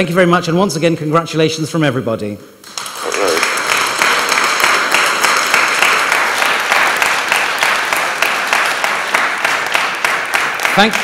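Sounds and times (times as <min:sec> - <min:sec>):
audience applauding: 0:02.7 - 0:11.0.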